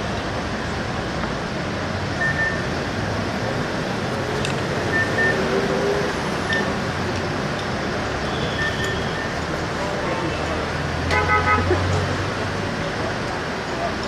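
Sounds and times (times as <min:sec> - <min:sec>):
traffic and running engines: 0:00.0 - 0:14.0
short high beeps: 0:02.2 - 0:02.7, 0:08.5 - 0:09.3.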